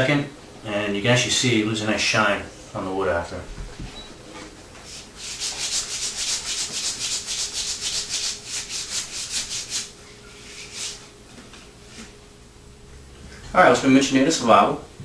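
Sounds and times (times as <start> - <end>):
hand rubbing wooden handle: 4.8 - 11.2.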